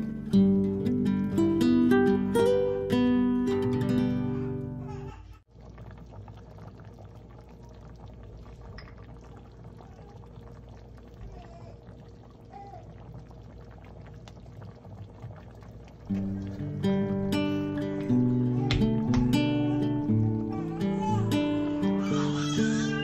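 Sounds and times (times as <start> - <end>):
thick liquid bubbling: 5.5 - 22.0.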